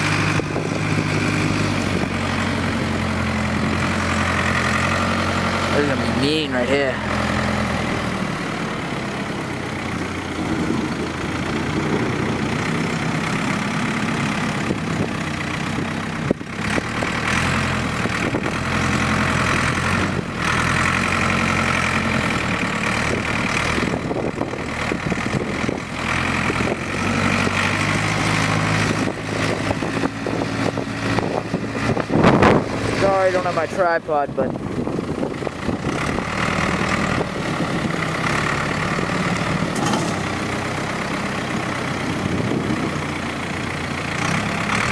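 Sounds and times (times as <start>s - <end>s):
diesel backhoe engine running: 0.0s - 44.9s
sharp clunk: 39.8s - 40.2s.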